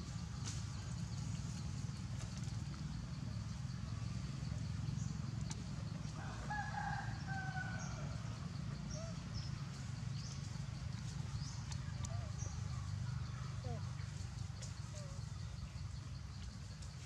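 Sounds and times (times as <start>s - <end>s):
rooster crowing: 6.2s - 8.2s
steady low rumble: 7.1s - 17.0s.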